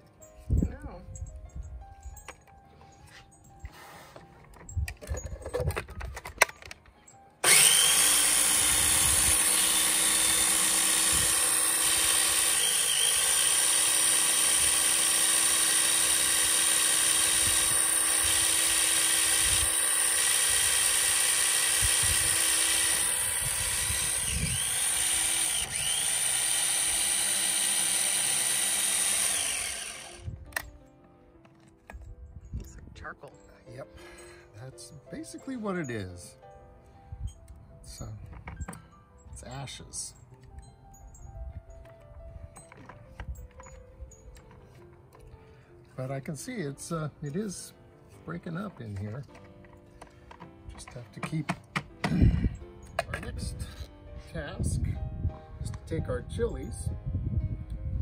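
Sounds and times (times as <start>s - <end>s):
electric blender grinding: 7.4s - 30.2s.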